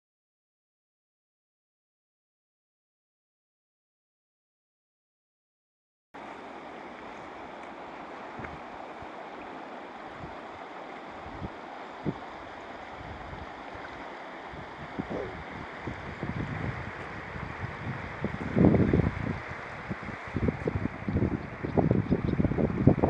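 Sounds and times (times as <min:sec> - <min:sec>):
river rippling: 0:06.2 - 0:23.0
wind bumps on microphone: 0:08.3 - 0:08.7, 0:11.2 - 0:12.3, 0:12.9 - 0:23.0.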